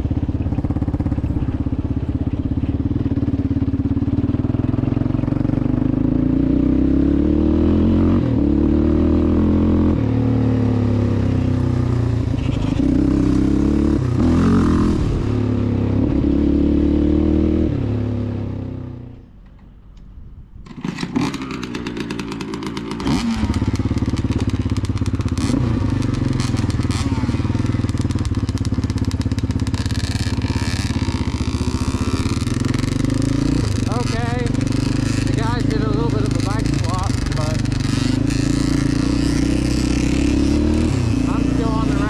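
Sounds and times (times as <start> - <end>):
atv engine idling: 0.0 - 6.5, 20.9 - 42.0
atv engine revving: 0.0 - 19.2, 20.6 - 42.0
dirt bike engines revving: 20.6 - 42.0.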